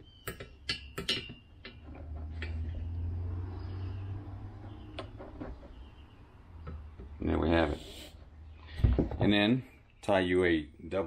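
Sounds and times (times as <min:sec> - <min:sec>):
passing vehicle rumble: 0:01.9 - 0:08.6.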